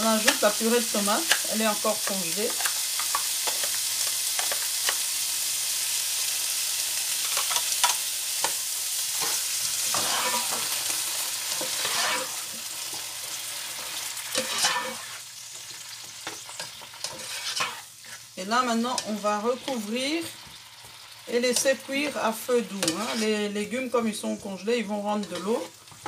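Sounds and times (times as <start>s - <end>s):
vegetables sizzling in pan: 0.0s - 26.0s
spatula scraping pan: 9.2s - 20.3s, 21.5s - 23.5s, 25.0s - 26.0s.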